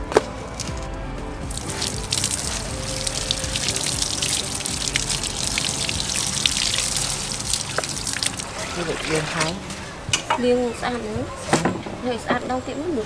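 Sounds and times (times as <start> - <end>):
leaves rinsed under water: 1.4 - 10.1
water pouring from a pipe: 1.4 - 10.1.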